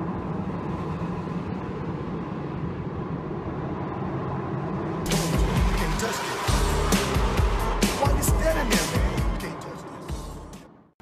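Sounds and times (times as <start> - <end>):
car engine running: 0.0 - 10.9
road noise: 0.0 - 11.0
loud music: 5.1 - 10.7.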